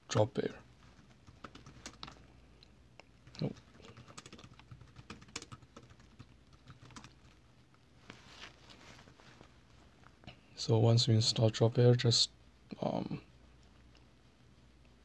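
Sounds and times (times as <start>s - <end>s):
laptop keyboard typing: 0.9s - 2.2s, 3.2s - 7.4s.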